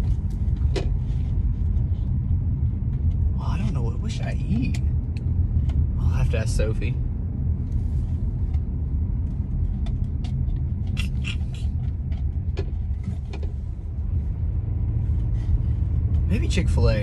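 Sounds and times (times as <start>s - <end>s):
car engine and road noise: 0.0s - 17.0s.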